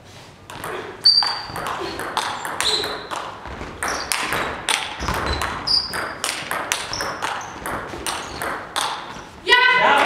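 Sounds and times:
ping pong ball ticking: 0.5 - 9.2
short high squeaks: 1.0 - 1.6, 2.6 - 3.1, 5.0 - 6.1.

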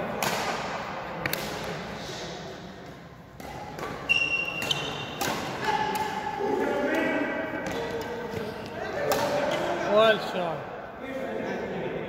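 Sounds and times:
rackets striking shuttlecock: 0.1 - 1.8, 3.3 - 9.7
shoe squeak: 4.0 - 5.8.

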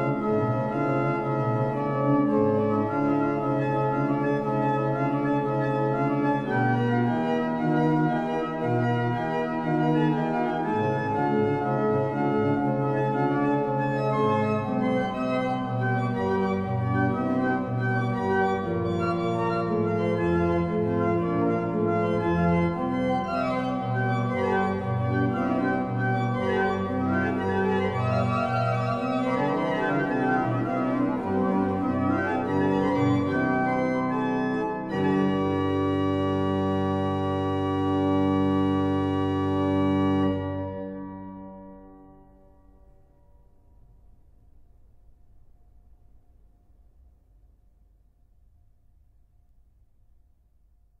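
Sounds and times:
pipe organ playing counterpoint: 0.0 - 42.0.

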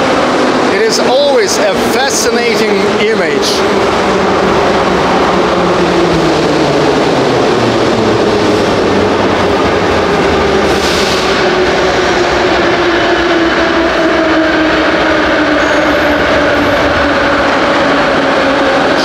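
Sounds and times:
metro train running noise: 0.0 - 19.0.

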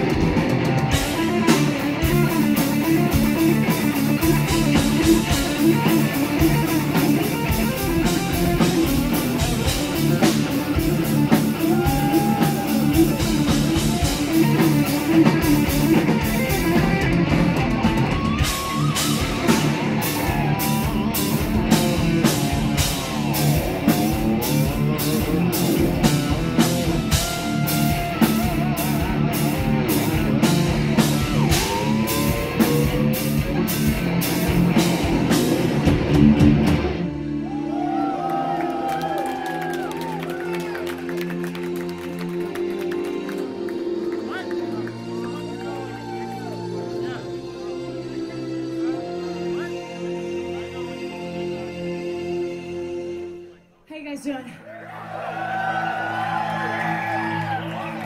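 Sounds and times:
drum kit beat: 0.0 - 37.2
electric lead guitar: 0.0 - 49.2
bass guitar: 0.0 - 53.2.

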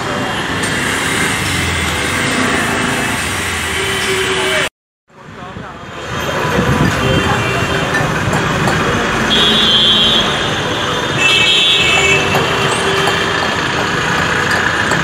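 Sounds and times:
buses passing close by: 0.0 - 15.0
vehicle horn blasts: 9.3 - 13.4.

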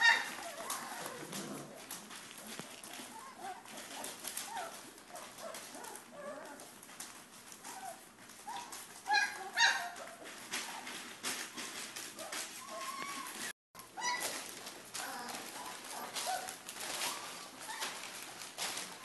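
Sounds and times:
puppy yelps: 0.0 - 1.4, 7.6 - 10.9, 12.2 - 14.4
paws scratching on paper: 0.0 - 19.0
puppies squeaking and whining: 0.0 - 19.0.

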